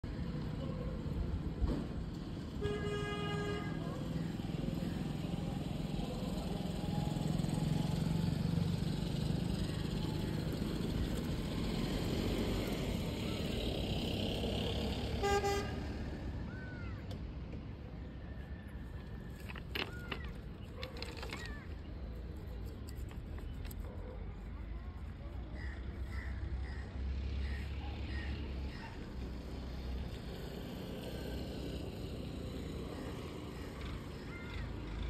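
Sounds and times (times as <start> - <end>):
low rumble of passing traffic: 0.0 - 35.0
car horn: 2.6 - 3.8, 15.2 - 16.1.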